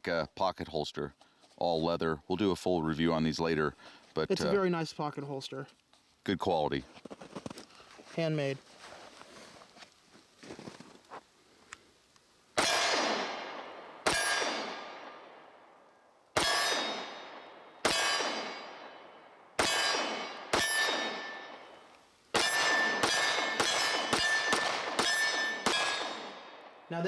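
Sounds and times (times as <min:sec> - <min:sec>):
pistol shots with echo: 0:12.6 - 0:15.8, 0:16.4 - 0:26.9.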